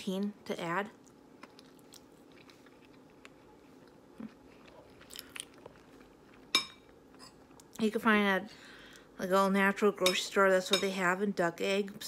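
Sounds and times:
low steady hum: 0.0s - 12.0s
person chewing: 1.0s - 7.8s.

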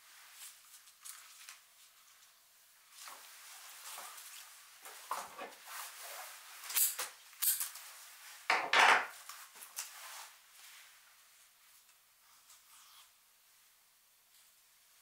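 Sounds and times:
rustling scrapes: 2.9s - 6.8s, 9.3s - 11.8s.

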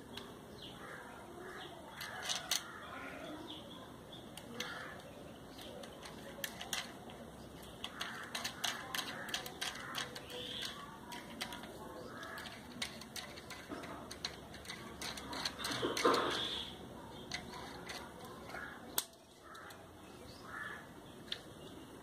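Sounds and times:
small clicks of metal and plastic: 2.0s - 2.8s, 4.3s - 16.5s, 17.1s - 19.9s, 21.2s - 21.5s.

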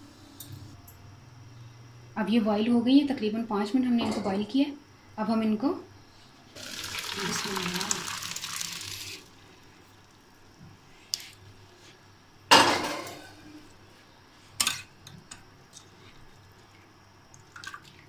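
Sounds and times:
metal pot clanking: 12.5s - 13.3s.

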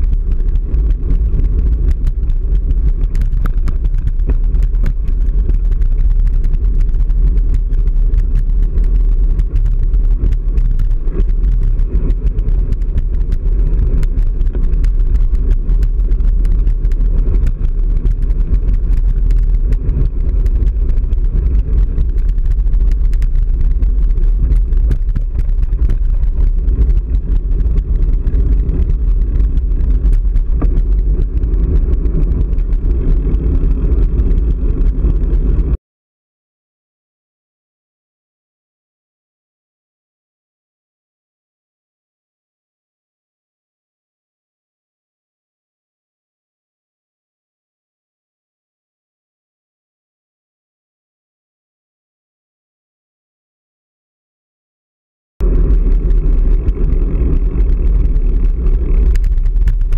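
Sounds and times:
bike clicks and rattles: 0.0s - 35.8s, 55.4s - 59.9s
road rumble: 0.0s - 35.8s, 55.4s - 59.9s
wind on microphone: 0.0s - 35.8s, 55.4s - 59.9s.

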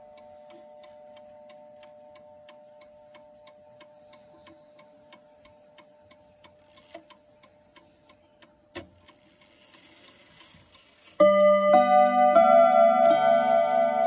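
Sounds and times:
pendulum clock ticking: 0.0s - 14.0s
clock chime rods notes: 11.2s - 14.0s.

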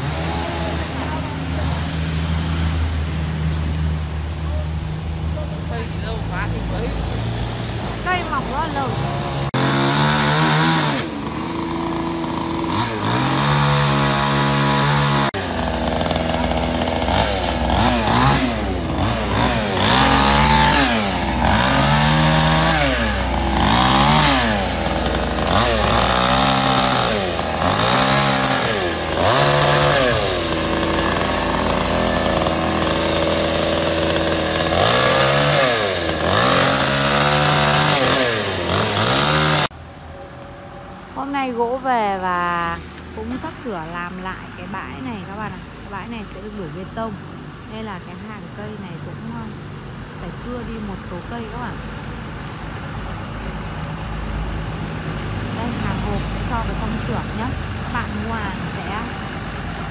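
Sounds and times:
chainsaw revving while cutting: 0.0s - 3.1s, 5.7s - 39.7s.

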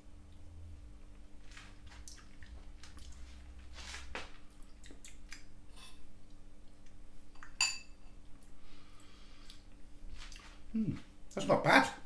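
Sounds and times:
chewing sounds: 1.5s - 3.5s, 4.5s - 6.0s.

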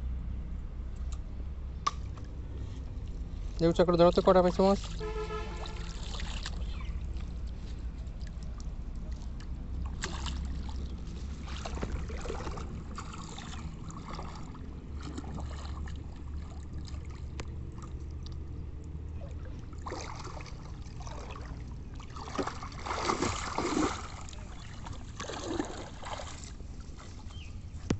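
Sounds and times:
water splashing and sloshing: 1.8s - 27.9s.

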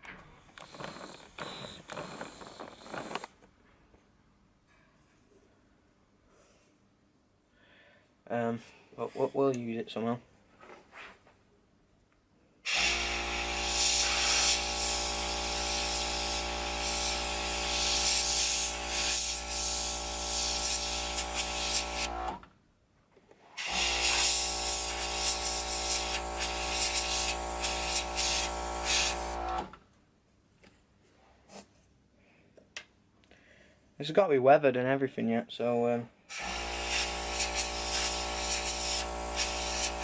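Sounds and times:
compressor motor hum: 0.4s - 3.3s, 12.7s - 22.4s, 23.6s - 29.7s, 36.4s - 40.0s
airbrush hissing: 0.6s - 3.2s, 12.7s - 22.1s, 23.6s - 29.4s, 36.3s - 40.0s.

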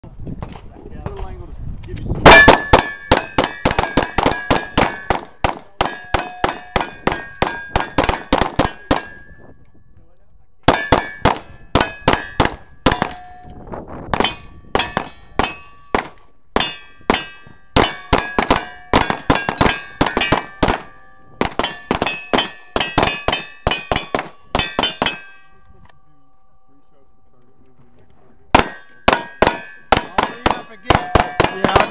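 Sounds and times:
steel plate clanging: 2.2s - 9.4s, 10.7s - 13.6s, 14.2s - 25.6s, 28.6s - 31.9s
rapid handgun shots: 2.3s - 9.3s, 10.7s - 13.3s, 14.2s - 25.3s, 28.6s - 31.9s.

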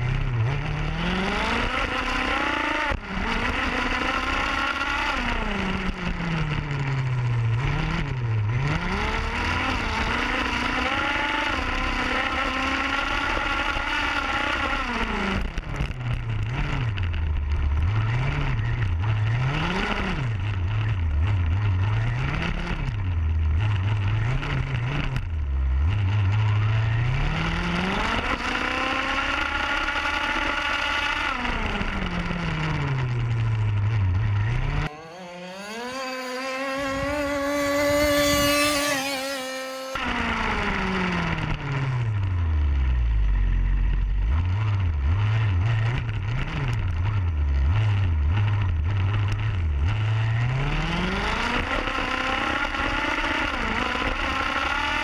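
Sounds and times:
rc car engine revving: 34.3s - 41.8s.

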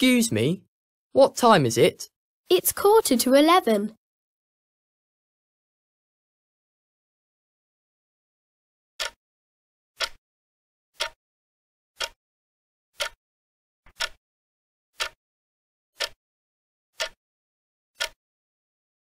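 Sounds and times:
countdown timer ticking: 9.0s - 9.2s.

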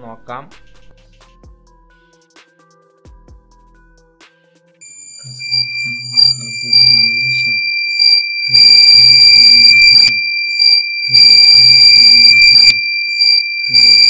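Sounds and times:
high-pitched buzzer tone: 4.8s - 14.0s
harsh loud noise: 5.2s - 14.0s.

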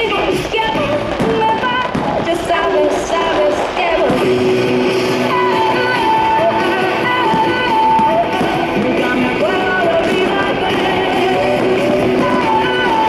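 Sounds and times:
person singing: 5.0s - 13.0s.

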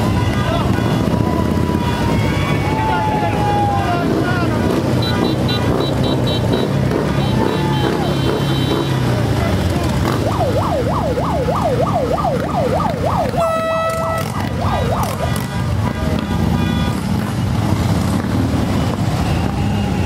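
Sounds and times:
siren yelping: 10.0s - 15.4s.

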